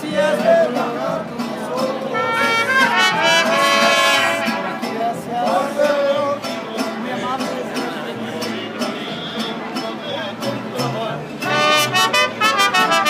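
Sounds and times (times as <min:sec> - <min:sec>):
mariachi band playing: 0:00.0 - 0:13.0
trumpets holding bright phrase: 0:02.1 - 0:05.2, 0:11.5 - 0:13.0.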